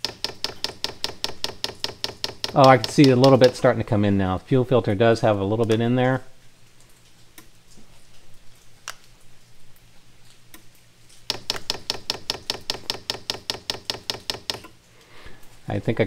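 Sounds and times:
fuel pump ticking: 0:00.0 - 0:03.7, 0:11.3 - 0:14.7.

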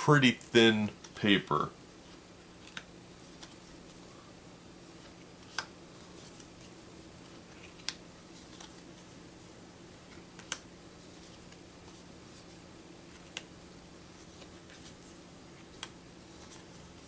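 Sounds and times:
faint steady hum: 0:00.0 - 0:17.0
paper cards snapping: 0:07.5 - 0:08.9, 0:10.1 - 0:10.7.

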